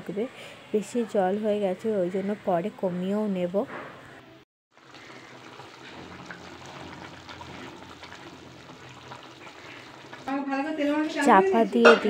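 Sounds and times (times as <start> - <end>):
woman's voice: 0.0 - 3.7, 10.3 - 12.0
curry bubbling at a boil: 4.7 - 11.3.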